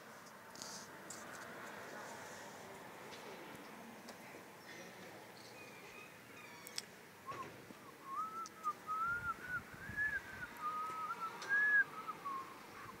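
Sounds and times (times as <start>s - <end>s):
faint clicks: 6.6s - 7.5s
person whistling a slow tune: 7.3s - 13.0s.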